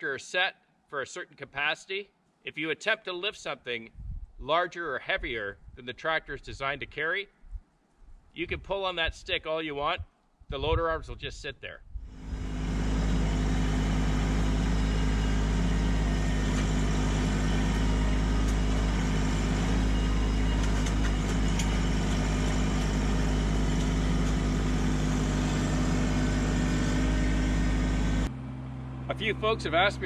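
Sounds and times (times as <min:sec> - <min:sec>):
tractor diesel engine running: 0:12.1 - 0:30.0.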